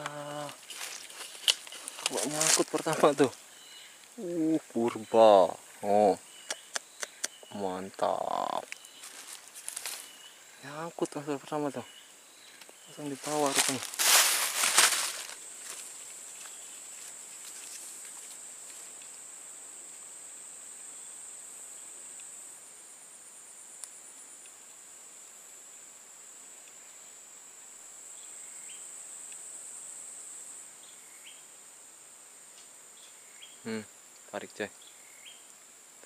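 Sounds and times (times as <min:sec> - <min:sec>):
high-pitched insect drone: 0:00.0 - 0:24.5.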